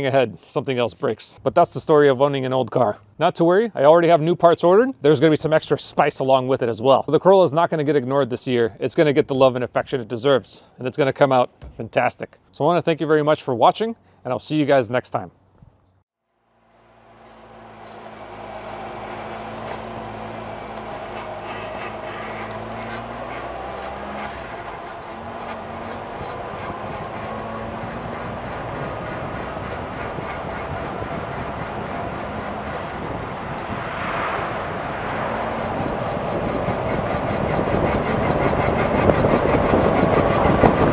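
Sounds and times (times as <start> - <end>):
car engine running: 16.4 - 40.9
tyre and road noise: 16.4 - 40.9.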